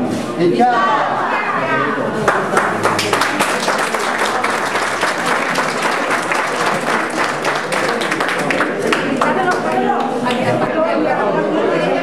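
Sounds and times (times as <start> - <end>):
crowd applauding: 2.2 - 10.4.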